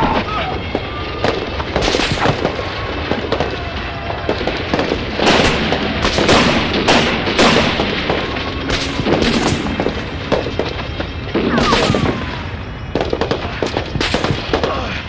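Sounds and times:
pistol shots: 4.4s - 14.8s.

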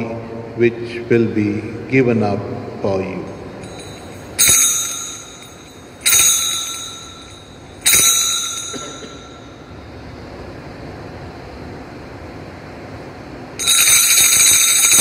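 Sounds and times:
bell ringing: 3.6s - 9.8s, 13.6s - 15.0s.

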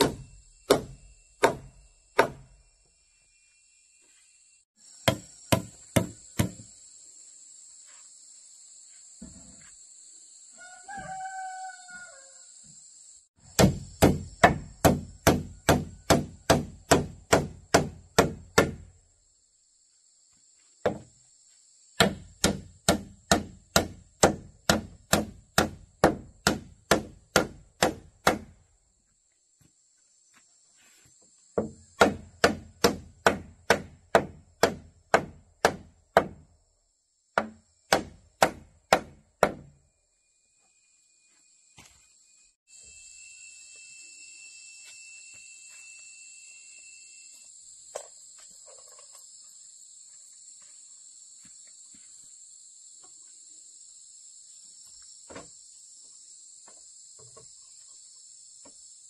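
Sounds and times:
high insect hum: 0.0s - 59.0s
rooster crowing: 10.6s - 12.6s.

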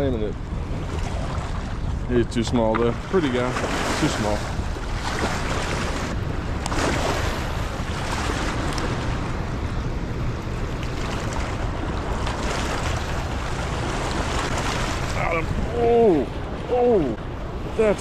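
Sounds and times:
wind buffeting microphone: 0.0s - 18.0s
water rushing over spillway: 12.2s - 17.2s.

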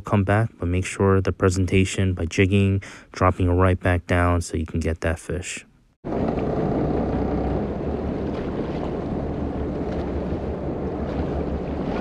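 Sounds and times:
wind rushing over microphone: 6.1s - 12.0s
water sloshing against boat: 6.2s - 12.0s.

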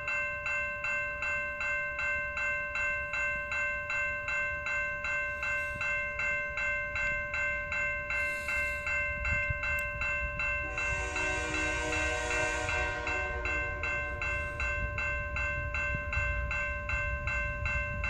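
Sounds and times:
level crossing bell ringing: 0.0s - 18.0s
low rumble: 10.4s - 17.0s
locomotive horn: 10.6s - 14.9s.

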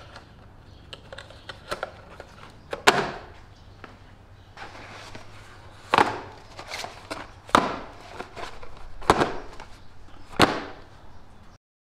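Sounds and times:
cardboard rustling: 4.6s - 11.0s
boxes knocking on a workbench: 5.9s - 10.8s.

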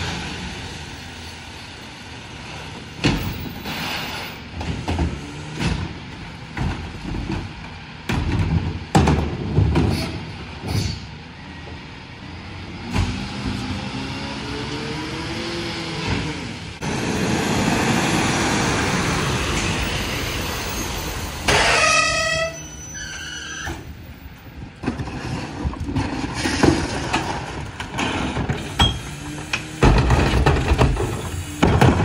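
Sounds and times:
cart tipper clatter and rumble: 2.5s - 11.1s, 16.8s - 32.0s
high brake squeal: 19.7s - 24.0s.

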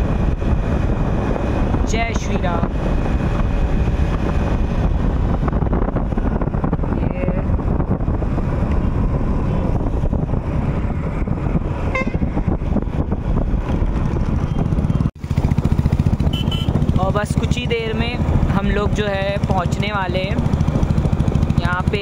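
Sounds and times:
road noise: 0.0s - 22.0s
wind rumbling on microphone: 0.0s - 22.0s
scooter engine: 8.0s - 22.0s.

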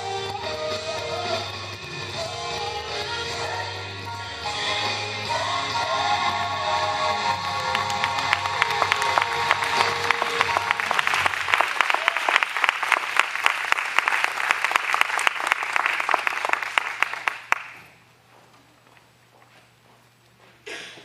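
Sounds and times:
audience applause: 7.2s - 17.8s.

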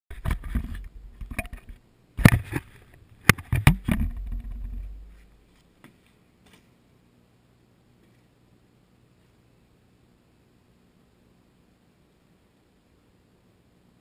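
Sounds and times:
camera housing knocks and scrapes: 0.2s - 5.2s.

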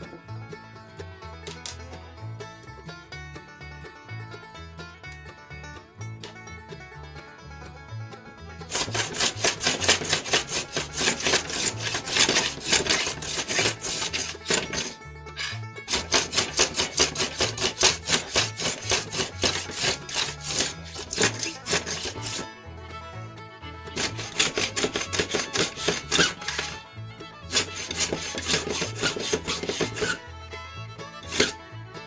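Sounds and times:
background music: 0.0s - 32.0s
hand plane scraping wood: 8.7s - 22.6s, 23.9s - 30.3s, 31.0s - 32.0s.

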